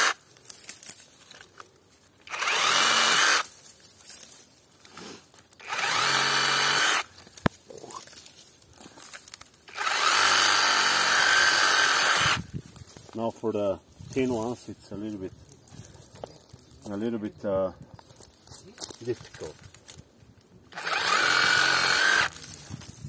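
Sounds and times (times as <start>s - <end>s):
reciprocating saw cutting: 2.2s - 3.4s, 5.0s - 7.1s, 9.7s - 12.4s, 20.7s - 22.4s.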